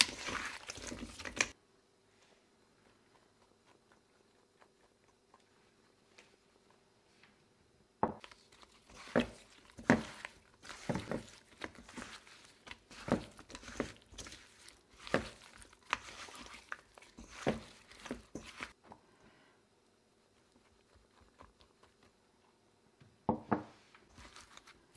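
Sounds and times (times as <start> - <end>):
potato slices slapping and rustling: 0.0 - 1.6, 8.2 - 18.8, 24.1 - 24.9.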